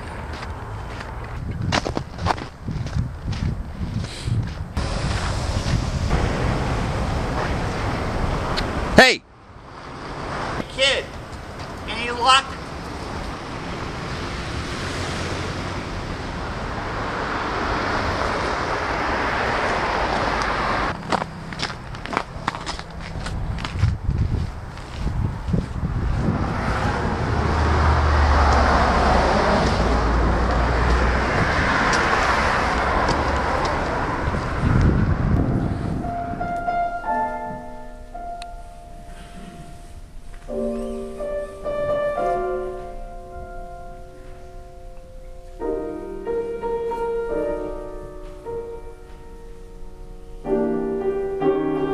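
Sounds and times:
tyres hissing on road: 4.0 - 9.0, 38.9 - 41.7
slow instrumental music: 35.9 - 51.9.

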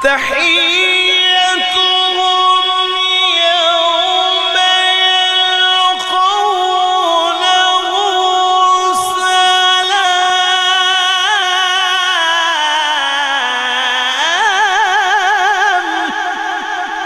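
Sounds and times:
man reciting melodically over speakers: 0.0 - 17.0.

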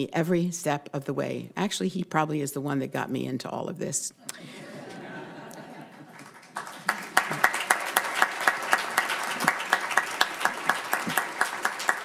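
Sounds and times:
audience applauding: 5.7 - 12.0
close loud hand claps: 6.2 - 12.0.

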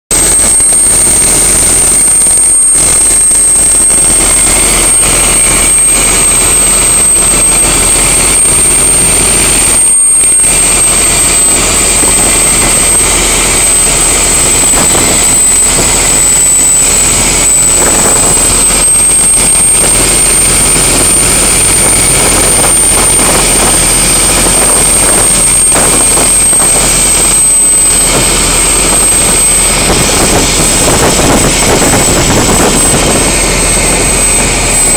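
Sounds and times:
boat engine running: 0.1 - 34.9
thin high whine: 0.1 - 34.9
water churning along hull: 0.1 - 34.9.

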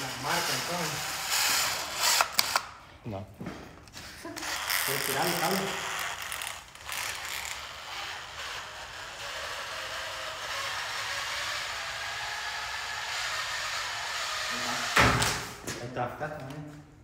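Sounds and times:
power drill running: 0.0 - 2.7, 4.4 - 15.1.

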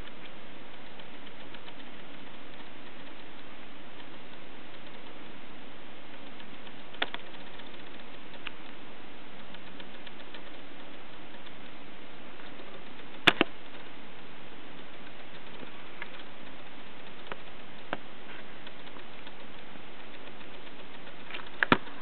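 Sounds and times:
steady hiss: 0.0 - 22.0.

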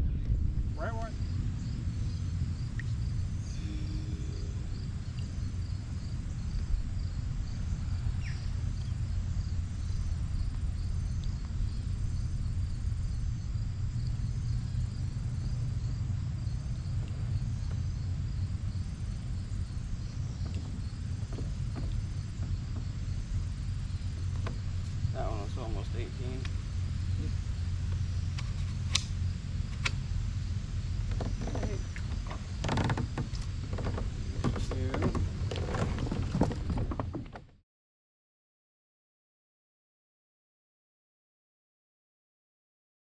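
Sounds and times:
insects chirping: 0.0 - 37.4
low rumble: 0.0 - 37.5.

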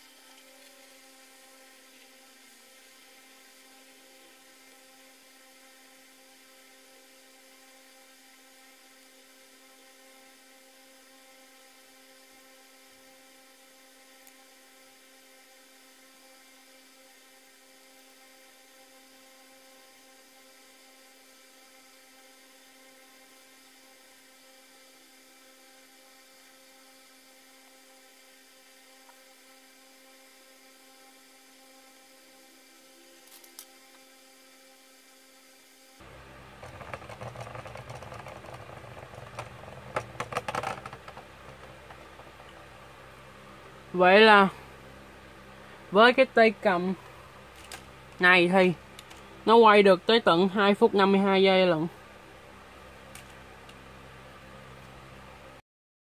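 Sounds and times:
spinning top whirring: 0.0 - 44.6.

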